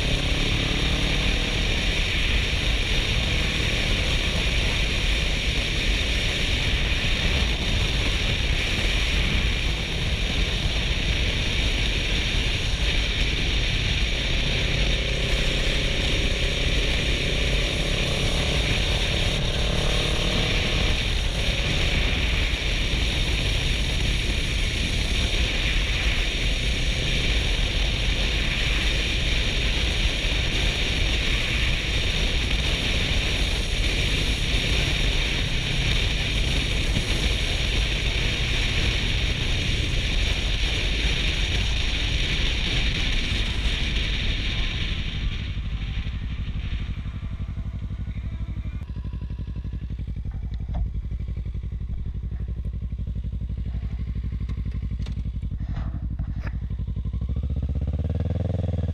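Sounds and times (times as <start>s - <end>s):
motorcycle engine running: 0.0s - 58.9s
wind buffeting helmet: 30.0s - 58.9s.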